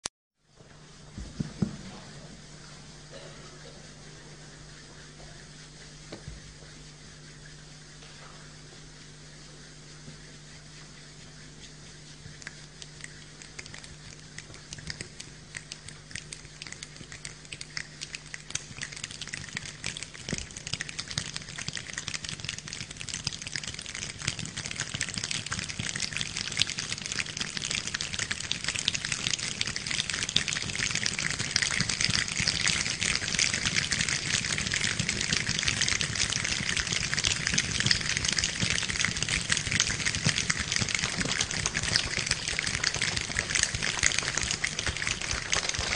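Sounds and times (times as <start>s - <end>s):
snaps and hand rubs like rain: 9.7s - 45.9s.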